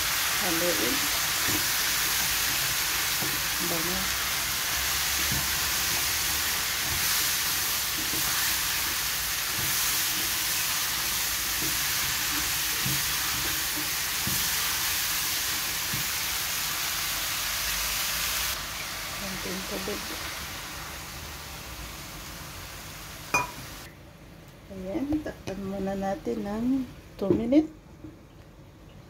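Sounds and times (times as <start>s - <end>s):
vegetables sizzling in oil: 0.0s - 23.9s
spatula scraping a wok: 5.2s - 10.8s.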